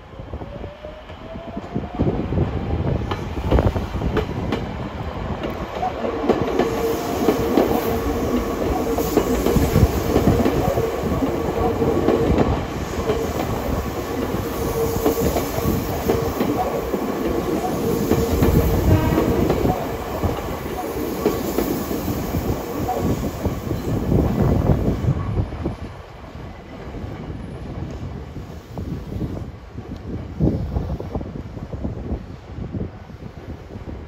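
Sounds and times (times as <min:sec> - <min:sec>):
electric train whine: 0:00.0 - 0:34.0
train wheels clattering: 0:05.4 - 0:24.0.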